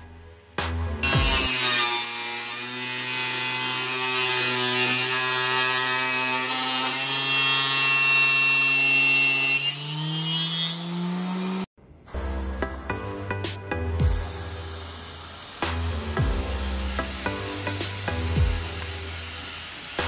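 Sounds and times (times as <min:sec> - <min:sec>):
table saw running: 0:01.0 - 0:11.7, 0:14.9 - 0:20.0.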